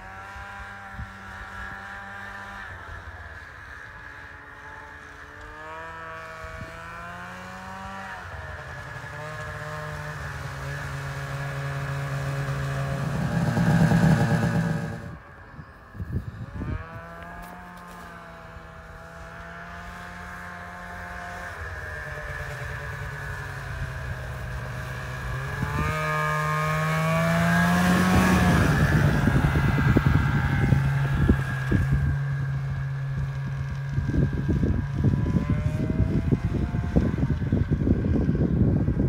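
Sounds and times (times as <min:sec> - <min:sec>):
snowmobile engine passing: 0:00.0 - 0:39.0
wind buffeting microphone: 0:27.2 - 0:39.0.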